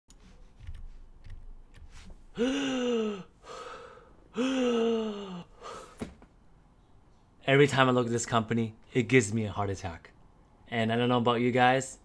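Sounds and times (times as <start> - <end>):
man breathing: 1.9 - 6.2
man groaning: 2.4 - 3.3, 4.3 - 5.5.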